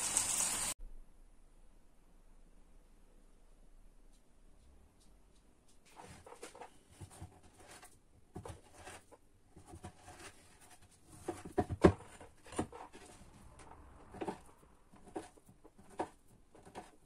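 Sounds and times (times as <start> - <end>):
knife slicing on wooden board: 14.1 - 17.0.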